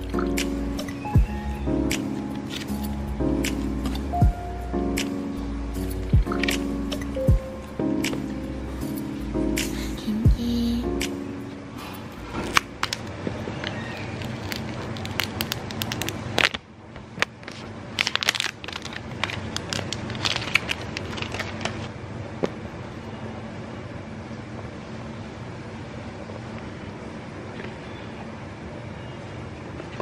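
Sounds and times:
plastic shrink-wrap crinkling: 12.1 - 21.9.

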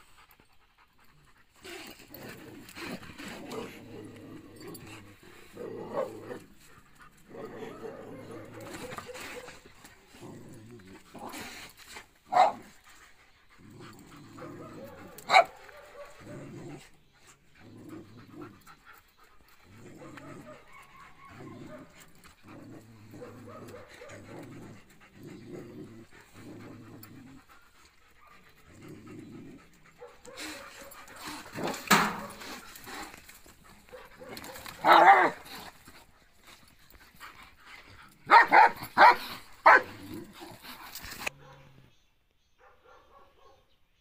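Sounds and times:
dogs snarling: 0.0 - 41.9
sharp dog barks: 12.3 - 12.6, 38.3 - 39.9.

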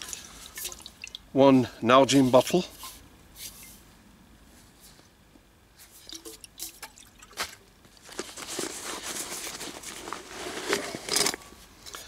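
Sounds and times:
fabric rustling and scraping: 2.1 - 5.2, 8.0 - 11.5.

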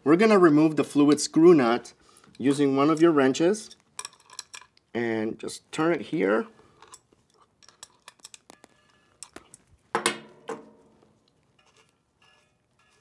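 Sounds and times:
wrench clicking and clinking: 6.8 - 8.6.

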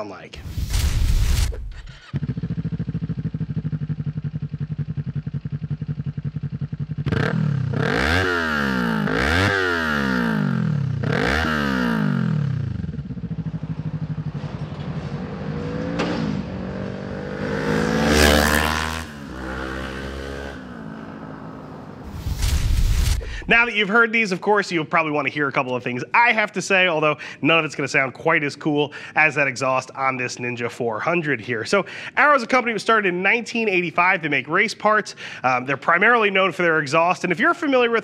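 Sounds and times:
motorcycle engine revving: 0.4 - 23.7.

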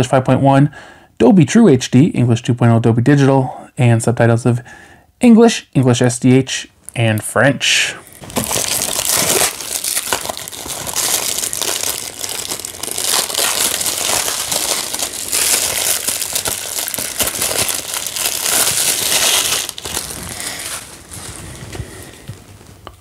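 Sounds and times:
plastic shrink-wrap crinkling: 8.0 - 23.0.

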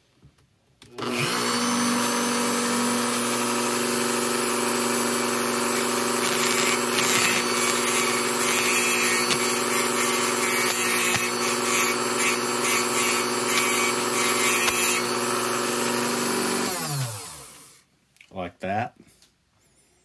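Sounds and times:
rotary tool running: 1.0 - 17.7
cutoff wheel grinding metal ring: 5.0 - 16.0.

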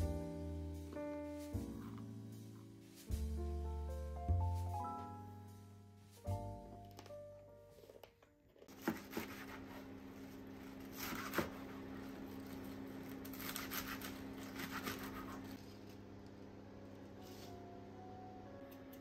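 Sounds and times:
knife cutting through leaves: 8.7 - 9.9, 10.7 - 15.8.

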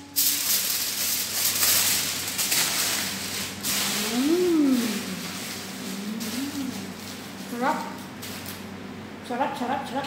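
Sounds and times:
person humming while chewing: 3.8 - 7.1.

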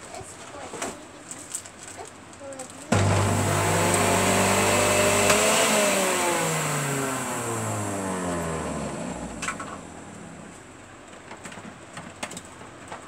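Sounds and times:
juicer motor winding down: 2.9 - 10.6.

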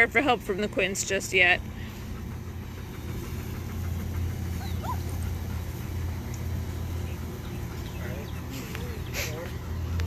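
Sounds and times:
steady low rumble: 0.0 - 10.0
puppies whimpering: 2.0 - 6.2, 6.8 - 10.0.

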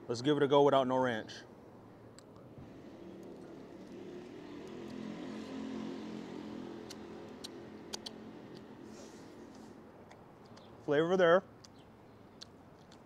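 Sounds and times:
passing vehicle engine hum: 2.5 - 10.0
lips smacking: 6.8 - 10.8, 11.6 - 13.0.

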